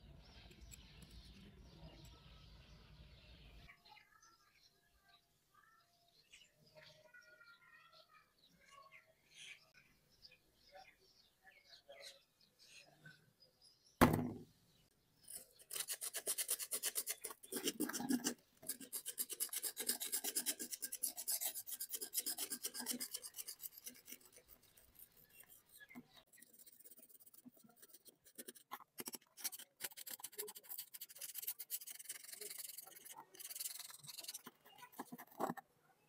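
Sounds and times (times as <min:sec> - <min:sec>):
scissors knocking on work surface: 0:14.0 - 0:14.4
screwdriver scraping rust off metal: 0:15.3 - 0:35.6.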